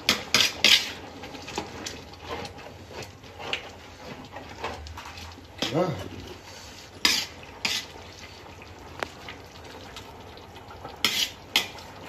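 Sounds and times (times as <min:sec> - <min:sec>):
metal ladle scraping a metal pot: 0:00.0 - 0:05.7, 0:06.3 - 0:08.0, 0:11.0 - 0:11.8.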